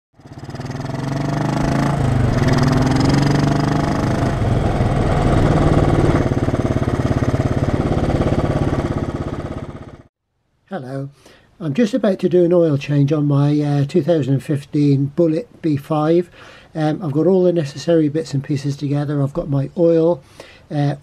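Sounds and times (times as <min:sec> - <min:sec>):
motorcycle engine running: 0:00.2 - 0:10.1.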